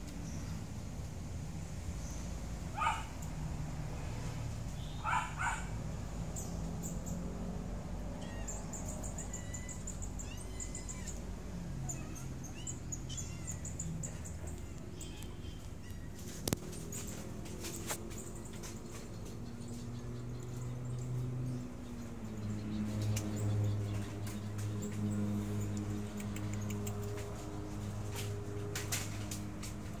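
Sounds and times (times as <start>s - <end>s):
small birds chirping: 0.0s - 0.8s, 4.7s - 30.0s
dog barking: 2.7s - 3.2s, 5.0s - 5.8s.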